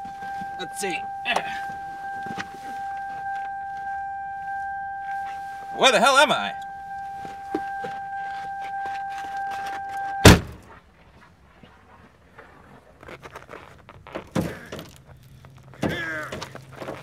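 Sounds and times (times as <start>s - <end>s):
steady high tone: 0.0s - 10.5s
car door slamming: 9.5s - 10.6s.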